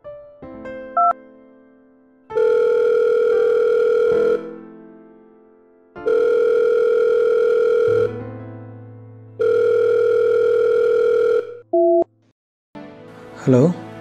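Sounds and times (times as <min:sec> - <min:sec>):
phone ringback tone beep: 0:01.0 - 0:01.2, 0:02.4 - 0:04.4, 0:06.1 - 0:08.1, 0:09.4 - 0:12.1.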